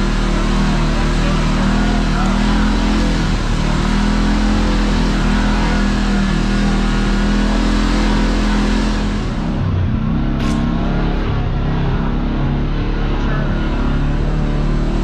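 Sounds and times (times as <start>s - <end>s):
utility vehicle engine running: 0.0s - 15.0s.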